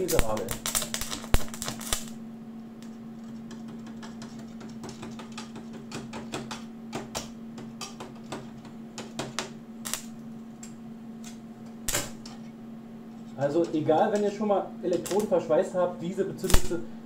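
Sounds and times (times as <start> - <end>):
arc crackles and snaps: 0.0 - 2.2, 9.8 - 12.3, 13.4 - 15.4, 16.4 - 16.8
welding electrode scratching on metal: 0.0 - 2.2, 9.8 - 10.2, 14.9 - 15.3, 16.4 - 16.8
steady hum: 0.0 - 17.0.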